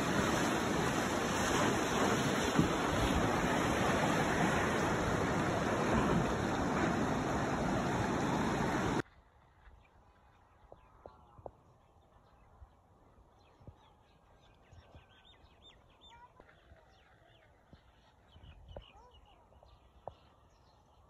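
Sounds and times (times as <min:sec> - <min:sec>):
river rushing over stones: 0:00.0 - 0:09.0.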